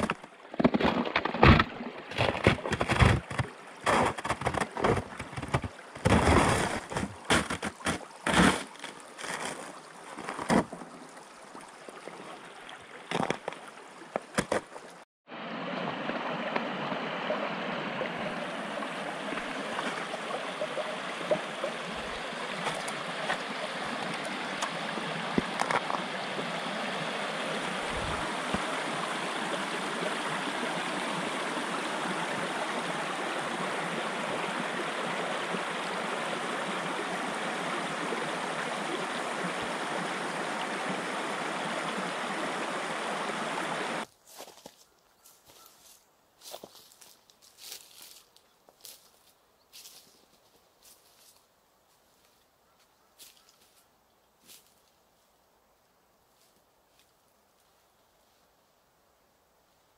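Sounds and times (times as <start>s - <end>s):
stream running over rocks: 0.0s - 44.8s.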